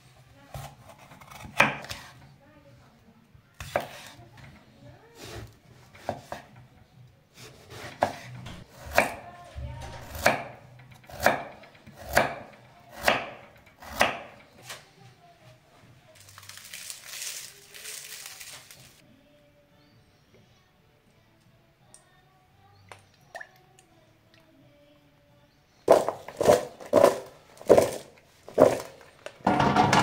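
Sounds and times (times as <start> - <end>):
knife chopping on cutting board: 0.5 - 2.1, 3.6 - 4.2, 6.0 - 6.5, 7.4 - 9.2, 10.0 - 14.4
rustling: 16.0 - 19.0.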